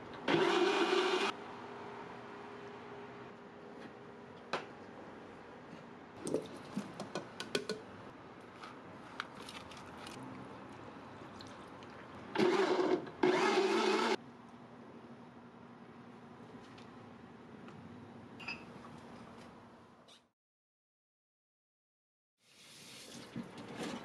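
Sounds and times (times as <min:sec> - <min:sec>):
blender motor pulsing: 0:00.3 - 0:01.3, 0:12.4 - 0:14.2.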